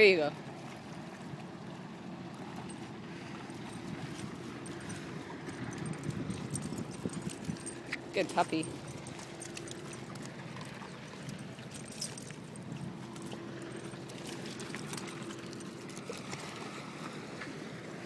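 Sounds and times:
steady outdoor hum: 0.0 - 18.0
footsteps on stones and shells: 3.9 - 16.0.

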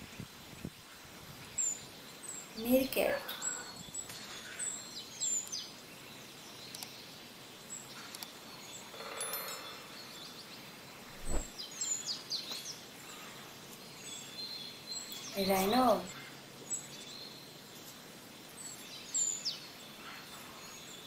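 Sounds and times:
steady outdoor hiss: 0.0 - 21.0
dull thump: 11.1 - 11.5.

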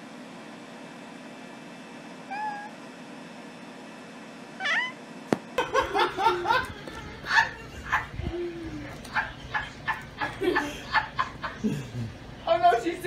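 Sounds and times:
cat meowing: 2.3 - 2.8, 4.6 - 5.0
short high cries: 4.6 - 5.0.

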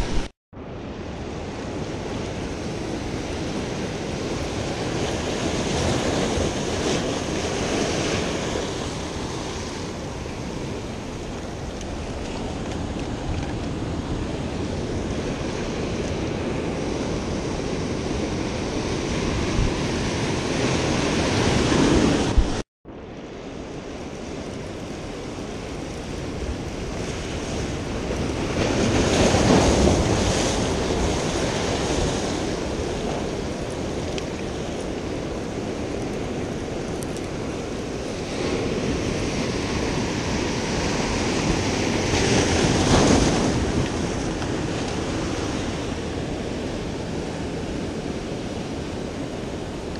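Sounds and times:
surf breaking over rocks: 0.0 - 0.3, 24.2 - 48.1
wind buffeting microphone: 0.0 - 0.3, 1.0 - 22.6, 23.7 - 49.9.

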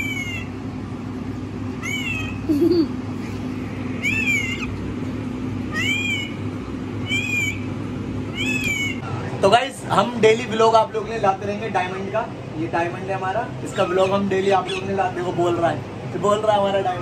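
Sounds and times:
parakeet chirps: 0.0 - 0.5, 1.8 - 2.4, 3.9 - 4.8, 5.7 - 6.4, 7.0 - 9.1, 13.7 - 15.0
steady low hum: 0.0 - 17.0.

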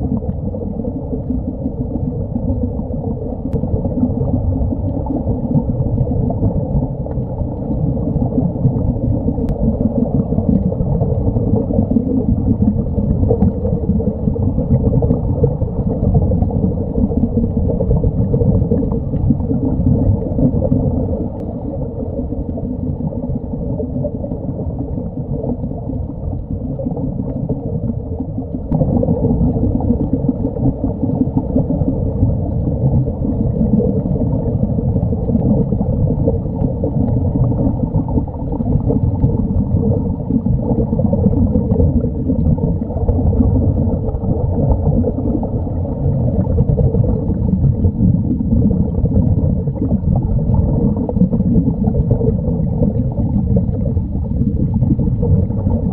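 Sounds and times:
air bubbling underwater: 0.0 - 55.9
underwater rumble: 0.0 - 55.9.

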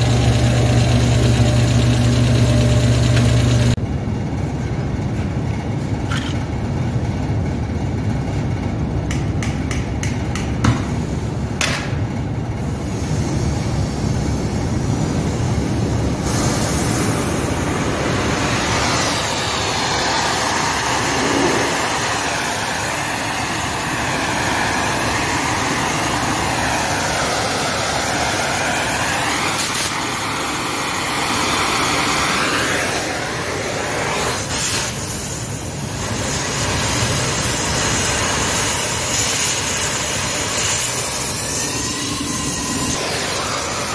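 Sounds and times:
shop machinery drone: 0.0 - 43.9
torch burning hiss: 16.2 - 43.9.

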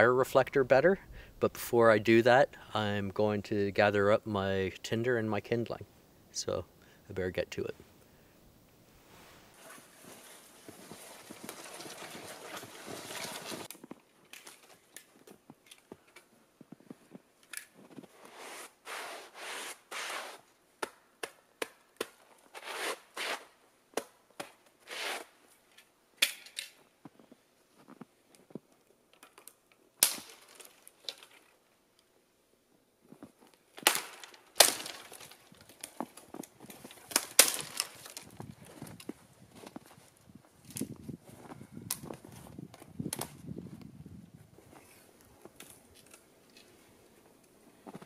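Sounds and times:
dry twigs snapping: 33.8 - 39.1.

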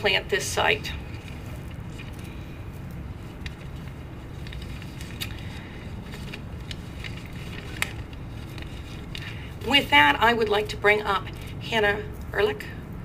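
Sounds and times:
steady low rumble: 0.0 - 13.0
paper rustling and shuffling: 0.7 - 9.9.

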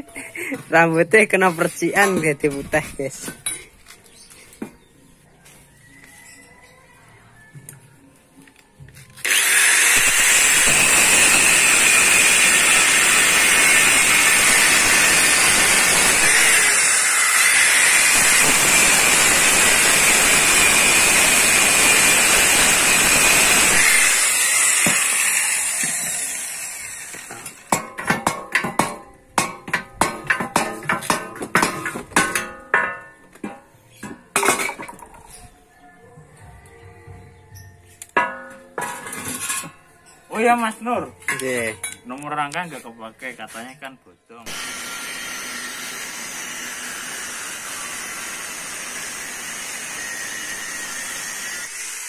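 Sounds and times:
angle grinder cutting metal: 9.2 - 27.9, 44.5 - 52.0.

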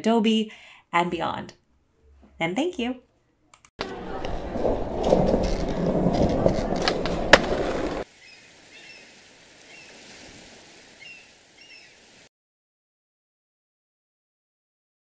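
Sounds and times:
faint outdoor ambience: 1.6 - 12.3
skateboard click: 3.8 - 8.0
skateboard wheels rolling: 3.8 - 8.1
bird chirps: 8.2 - 9.1, 11.0 - 12.0.

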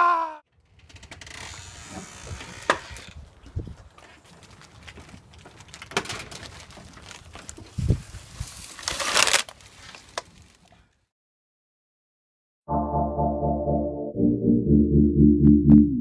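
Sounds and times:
plastic bottle crinkling: 3.9 - 10.7.

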